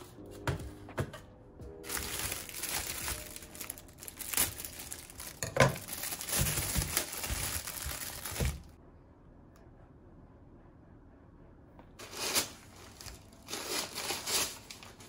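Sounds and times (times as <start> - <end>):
plastic bag crinkling: 1.8 - 8.8, 12.0 - 15.0.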